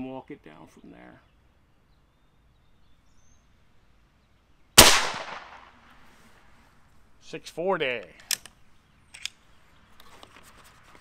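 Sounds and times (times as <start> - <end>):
air rifle shot: 4.8 - 5.8.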